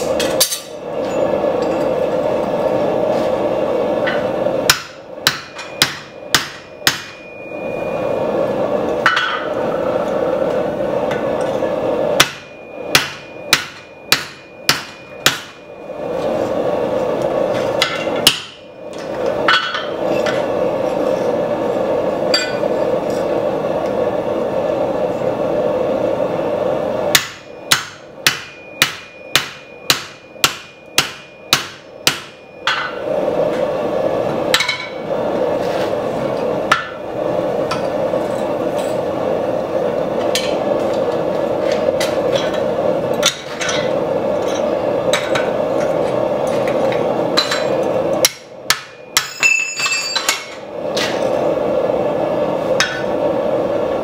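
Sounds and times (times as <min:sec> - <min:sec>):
steady drone: 0:00.0 - 0:43.2
hammer ringing blows on steel: 0:12.2 - 0:15.8, 0:27.2 - 0:33.0.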